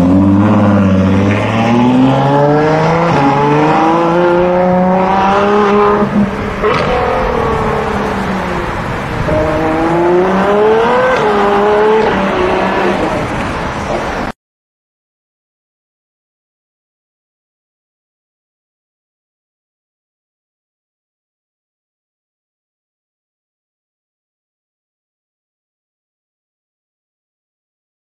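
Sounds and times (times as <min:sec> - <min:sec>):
sports car accelerating: 0:00.0 - 0:14.3.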